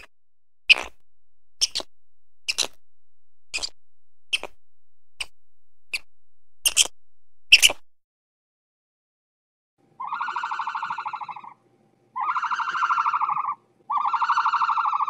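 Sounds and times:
animal crunching food: 0.7 - 1.0, 2.5 - 2.8, 3.5 - 4.6.

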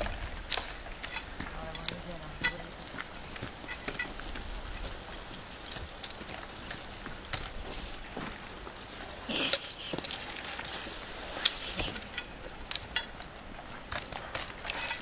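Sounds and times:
climbing spikes knocking on bark: 0.0 - 8.5
metal hardware clinking: 0.5 - 2.8, 11.4 - 13.4.

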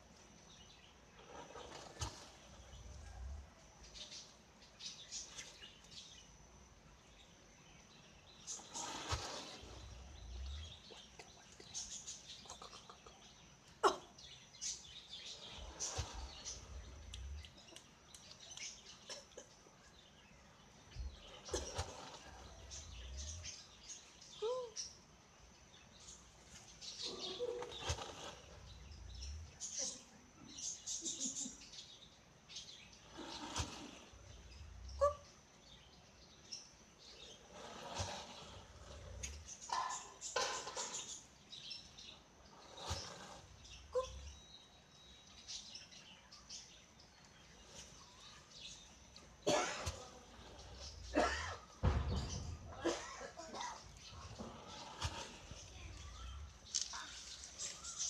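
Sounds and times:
small birds chirping: 0.0 - 58.0
turkey puffing spits: 33.1 - 34.3.

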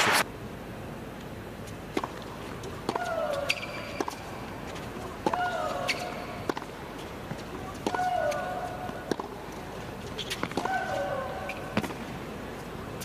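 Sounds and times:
racket striking tennis ball: 1.9 - 9.4, 10.2 - 12.1.

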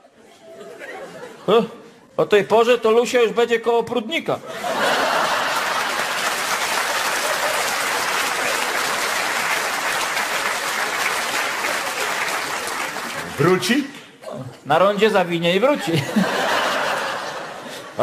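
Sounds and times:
audience applauding: 4.8 - 13.8.

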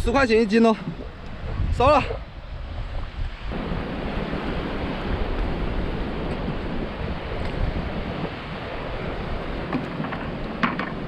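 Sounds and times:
sea surf: 0.0 - 11.0
wind buffeting microphone: 0.0 - 11.0.

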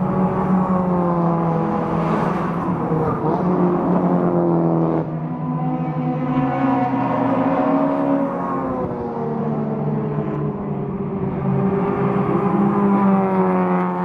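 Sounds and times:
cars passing at speed: 0.0 - 14.0.

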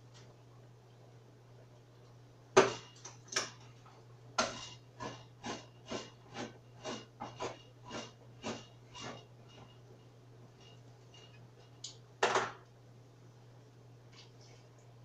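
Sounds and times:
utensil knocking and scraping in pan: 4.4 - 9.7.

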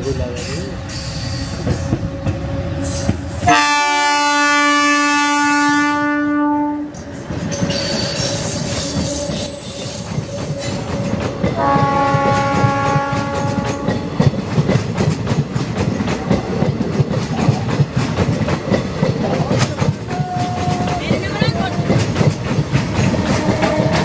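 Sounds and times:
train wheels rumbling and clattering: 0.0 - 5.6, 6.9 - 24.0
high wheel squeal: 0.4 - 2.0, 7.0 - 11.1
train horn blast: 1.6 - 7.0, 11.6 - 14.0, 23.0 - 24.0.

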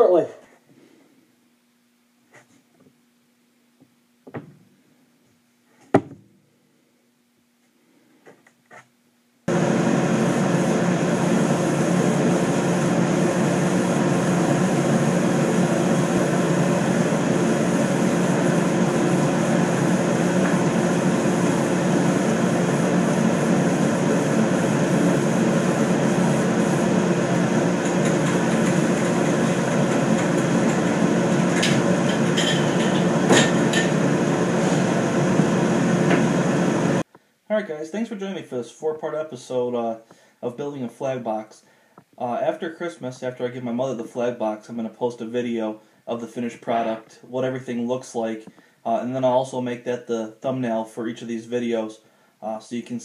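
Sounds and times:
machine drone humming: 9.5 - 37.0.

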